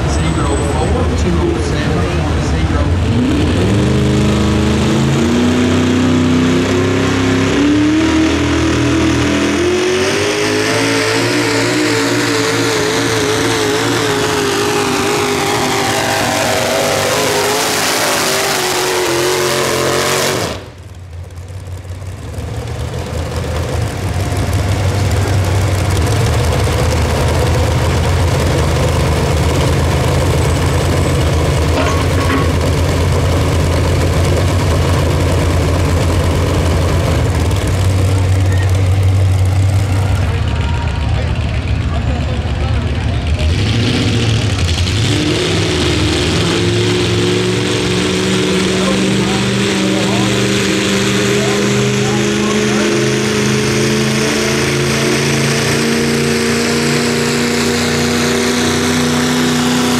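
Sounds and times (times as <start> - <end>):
high rising whine: 0.0 - 21.0, 44.1 - 59.9
deep steady engine rumble: 0.0 - 59.9
tractor engine under load: 0.0 - 59.9.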